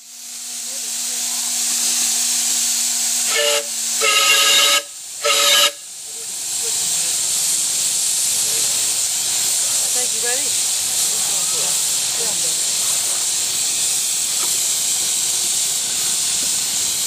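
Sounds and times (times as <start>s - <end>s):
steam locomotive hissing: 0.0s - 17.0s
steam whistle blasts: 3.2s - 5.9s.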